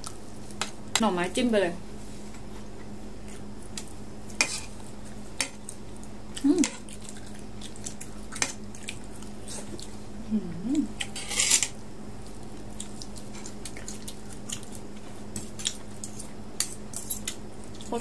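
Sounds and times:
steady low hum: 0.0s - 18.0s
close-up chewing: 5.6s - 10.0s, 12.2s - 16.4s
person humming mm: 10.2s - 11.0s.

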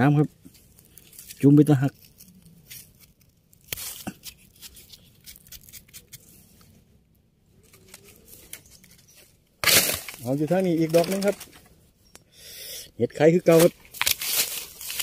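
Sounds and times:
knife scraping mushroom stem: 0.5s - 6.7s.

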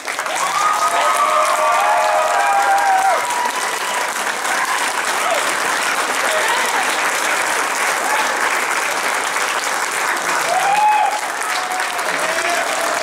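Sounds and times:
audience applauding: 0.0s - 13.0s
person cheering: 0.3s - 5.5s, 10.5s - 13.0s.

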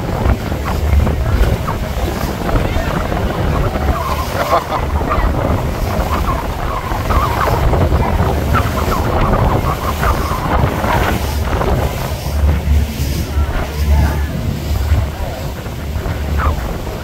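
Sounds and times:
low rumble: 0.0s - 17.0s
water rushing in boat wake: 0.0s - 17.0s
wind buffeting microphone: 0.0s - 17.0s.

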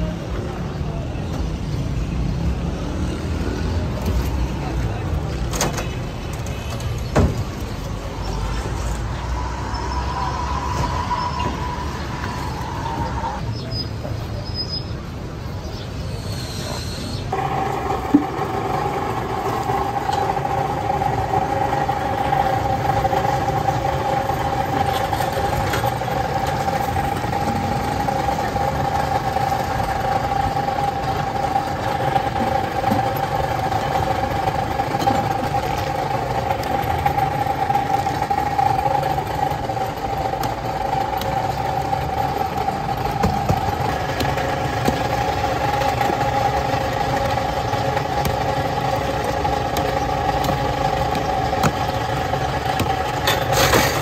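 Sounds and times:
street traffic noise: 0.0s - 54.0s
steady motor hum: 17.2s - 54.0s.

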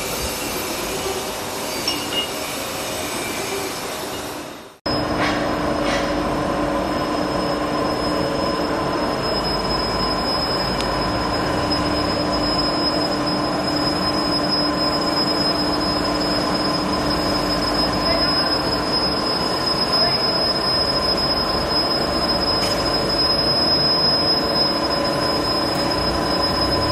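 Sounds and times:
high machine whine: 0.0s - 26.9s.

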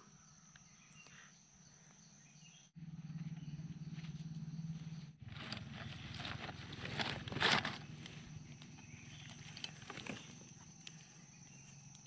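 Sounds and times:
forest insects droning: 0.0s - 12.0s
low steady hum: 2.8s - 12.0s
footsteps through dry leaves: 5.2s - 8.0s.

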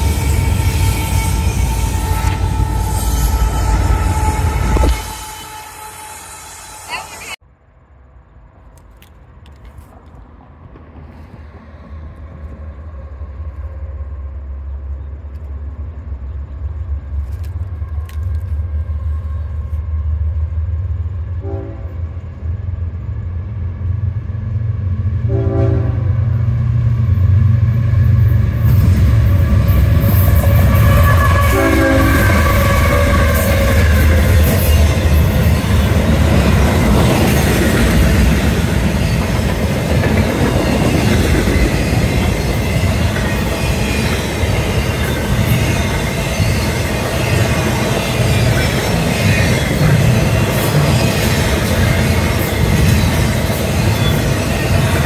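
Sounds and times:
diesel locomotive engine rumble: 0.0s - 55.0s
locomotive air horn blasts: 0.4s - 7.4s, 21.4s - 22.0s, 25.3s - 26.2s, 30.2s - 34.3s
wheels clattering on rail: 28.3s - 55.0s.

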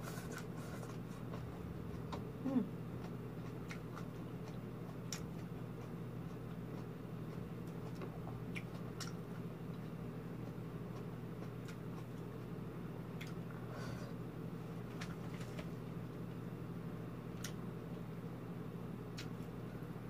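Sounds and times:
steady low hum: 0.0s - 20.0s
chewing: 0.1s - 12.5s
low vocal sound: 2.1s - 2.8s.

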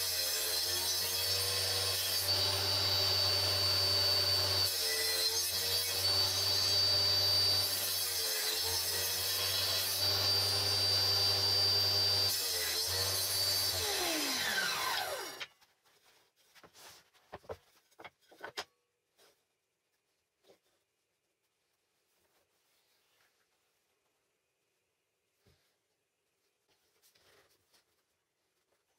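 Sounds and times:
table saw cutting wood: 0.0s - 15.5s
saw blade winding down: 2.0s - 7.8s, 9.9s - 15.5s.

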